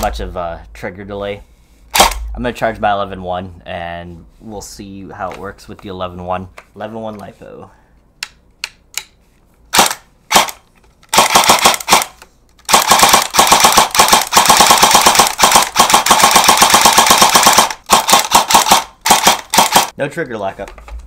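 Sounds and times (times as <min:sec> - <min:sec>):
airsoft gun firing: 0:01.9 - 0:02.3, 0:09.8 - 0:19.9.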